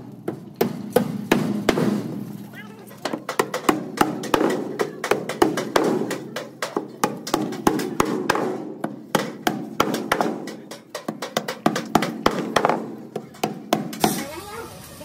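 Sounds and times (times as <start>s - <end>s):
hammer striking metal: 3.0s - 14.4s.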